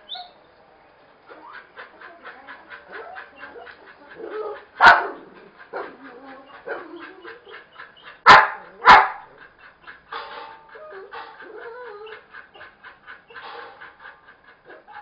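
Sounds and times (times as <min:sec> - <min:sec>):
dog barking: 0:04.8 - 0:05.2, 0:08.2 - 0:09.3.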